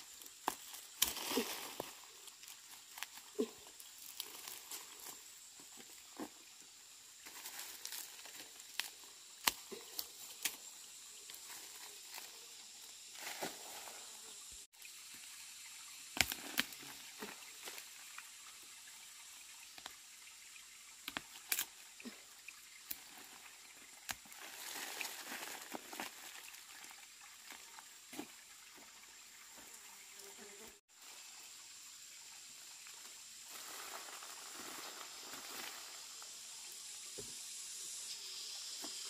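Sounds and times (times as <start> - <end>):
soil crumbling and falling: 0.0 - 6.4, 22.8 - 26.9
faint steady hiss: 0.0 - 39.0
dry leaves crackling and snapping: 0.4 - 5.1, 7.2 - 10.6, 16.2 - 17.0, 21.1 - 21.7, 24.0 - 26.5.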